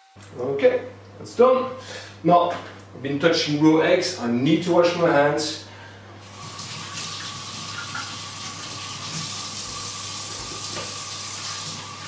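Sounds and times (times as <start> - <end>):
tap water running into sink: 6.3 - 12.0.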